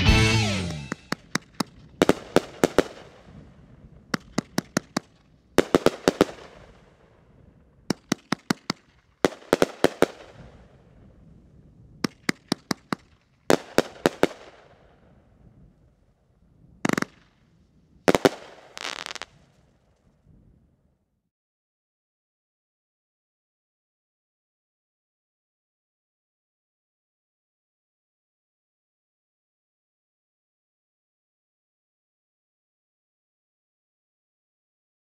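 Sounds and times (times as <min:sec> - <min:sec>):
fireworks hissing bursts: 0:00.1 - 0:03.4, 0:18.1 - 0:19.3
fireworks bangs in volleys: 0:00.3 - 0:15.2, 0:16.8 - 0:17.3, 0:18.0 - 0:19.6.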